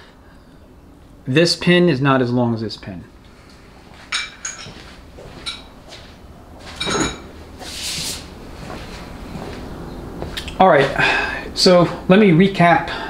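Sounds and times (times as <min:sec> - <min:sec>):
metal parts clinking on bench: 0:04.1 - 0:04.8
short rustle: 0:07.6 - 0:10.4.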